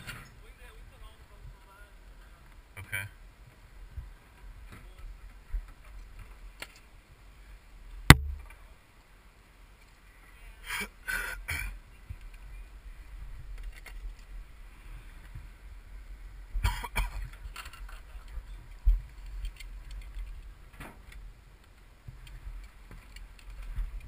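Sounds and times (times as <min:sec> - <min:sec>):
low steady rumble: 0:00.4 - 0:09.8
sharp knock: 0:08.1 - 0:08.5
rustling and scraping: 0:13.2 - 0:15.5, 0:16.6 - 0:24.0.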